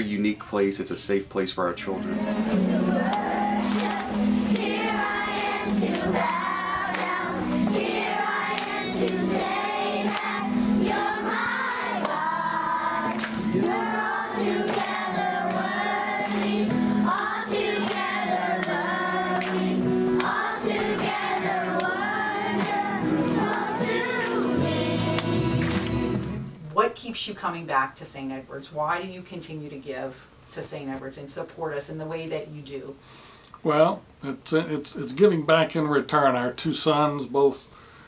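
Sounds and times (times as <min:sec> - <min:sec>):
children singing together: 0:02.0 - 0:26.2.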